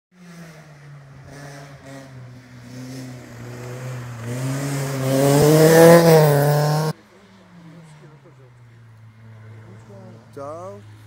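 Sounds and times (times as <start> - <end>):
race car engine revving: 0.1 - 7.0.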